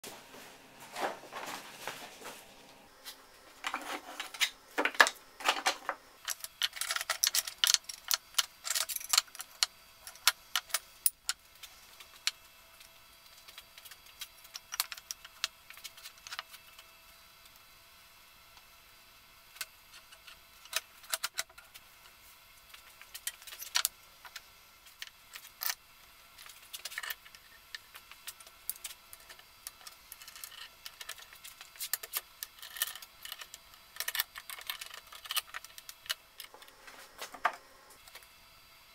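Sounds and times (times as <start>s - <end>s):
paper rustling: 0.0s - 6.0s
wood and clamps clicking and knocking: 3.6s - 11.4s.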